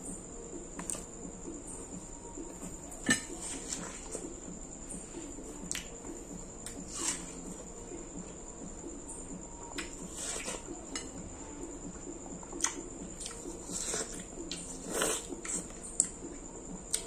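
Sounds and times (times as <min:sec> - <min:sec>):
person chewing watermelon: 0:05.7 - 0:06.0, 0:12.4 - 0:16.2.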